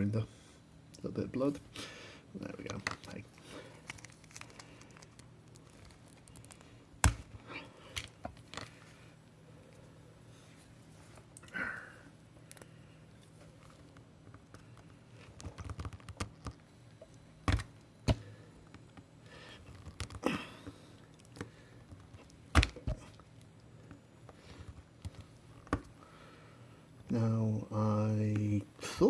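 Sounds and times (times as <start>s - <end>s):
soft plastic crackling: 2.5s - 9.0s.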